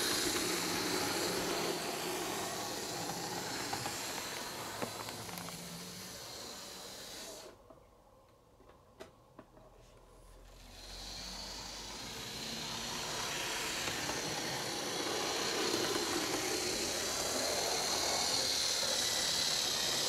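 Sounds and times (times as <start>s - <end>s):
model train running on track: 0.0s - 7.5s, 10.6s - 20.0s.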